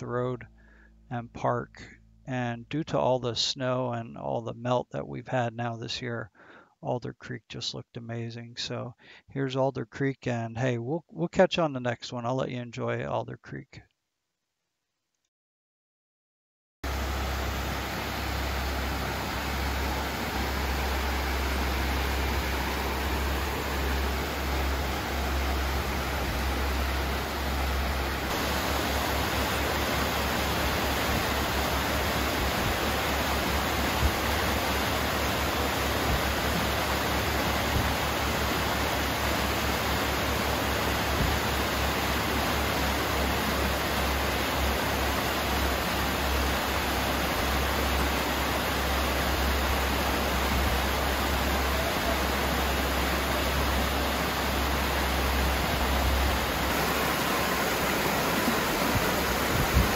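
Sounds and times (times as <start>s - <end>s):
creek rushing over rocks: 16.9s - 59.9s.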